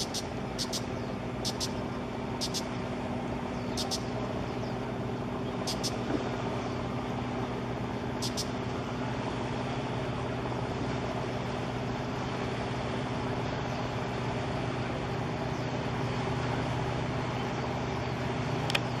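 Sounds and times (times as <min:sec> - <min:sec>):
high chirps: 0:00.0 - 0:01.8, 0:02.4 - 0:02.7, 0:03.7 - 0:04.1, 0:05.7 - 0:06.0, 0:08.2 - 0:08.5
low engine hum: 0:00.0 - 0:19.0
outdoor noise: 0:00.0 - 0:19.0.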